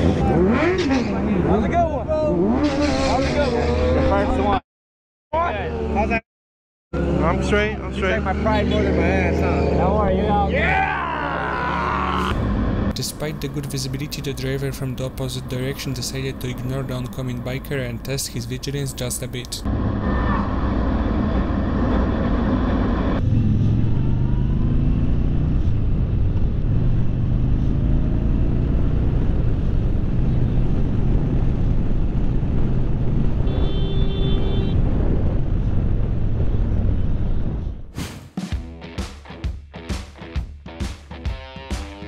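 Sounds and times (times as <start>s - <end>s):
wind and road noise: 0.0s - 4.6s, 7.0s - 38.0s
motorcycle engine accelerating: 20.4s - 33.5s.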